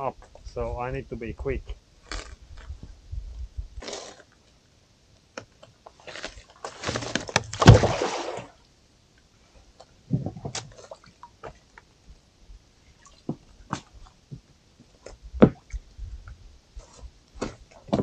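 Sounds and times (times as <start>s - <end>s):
rope splashing into water: 6.7s - 8.6s.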